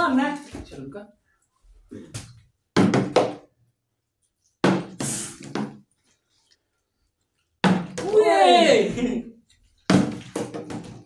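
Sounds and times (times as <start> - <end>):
plastic bottle clattering on wooden table: 9.9 - 11.0.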